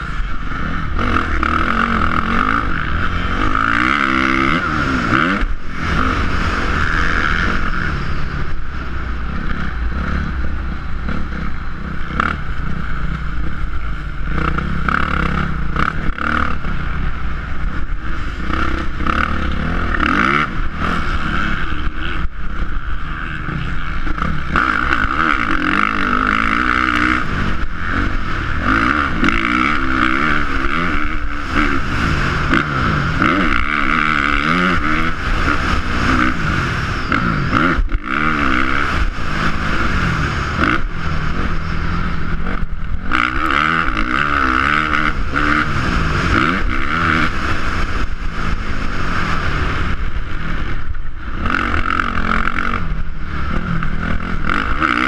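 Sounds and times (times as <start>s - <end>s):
dirt bike engine revving: 0.0s - 55.0s.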